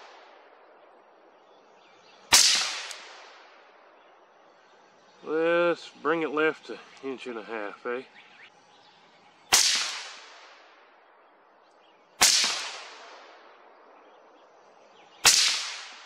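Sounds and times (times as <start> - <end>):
rifle shots with echo: 2.3 - 3.6, 9.5 - 10.8, 12.2 - 13.8, 15.2 - 16.0.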